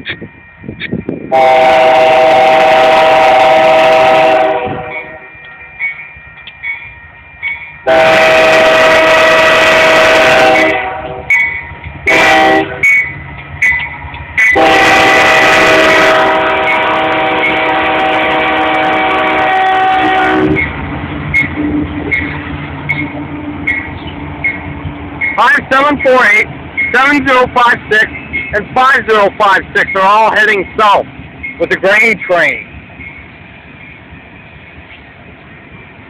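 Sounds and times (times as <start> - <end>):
crossing bell dinging: 0.0 - 2.2, 3.8 - 9.2, 9.8 - 36.0
diesel locomotives rumbling: 0.0 - 36.0
locomotive air horn: 1.3 - 5.2, 7.8 - 11.3, 12.1 - 12.8, 14.6 - 20.6.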